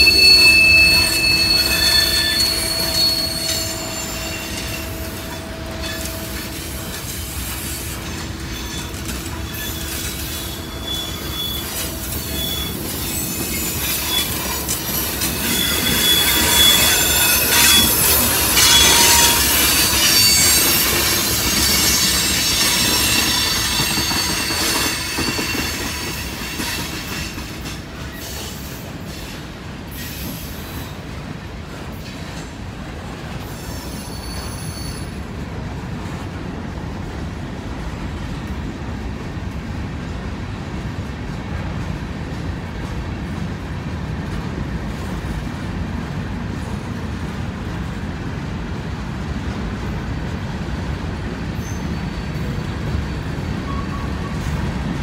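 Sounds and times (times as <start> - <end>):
train wheels squealing: 0.0 - 31.0, 33.4 - 35.2, 51.4 - 55.0
freight train rumble and clatter: 0.0 - 55.0.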